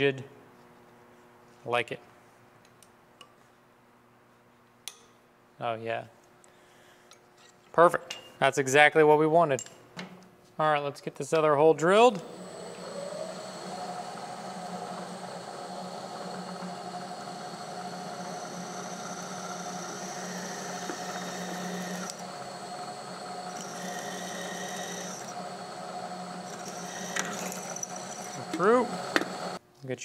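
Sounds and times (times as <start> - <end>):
milling spindle hum: 12.0 - 29.6
drill cutting metal whine: 12.1 - 29.6.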